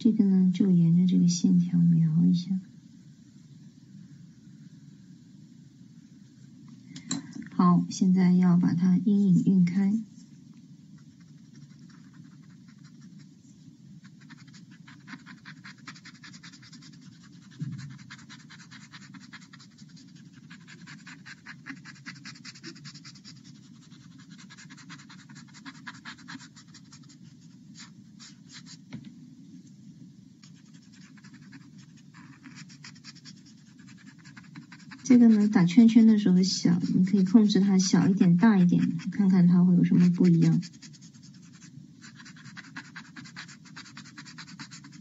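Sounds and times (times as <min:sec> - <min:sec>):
dry scratching on paper: 0:10.9 - 0:28.9, 0:30.4 - 0:45.0.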